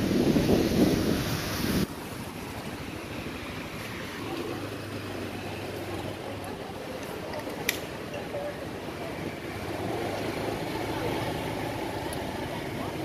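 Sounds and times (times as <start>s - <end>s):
wind buffeting microphone: 0.0s - 3.8s
low engine hum: 0.0s - 13.0s
street traffic: 0.0s - 13.0s.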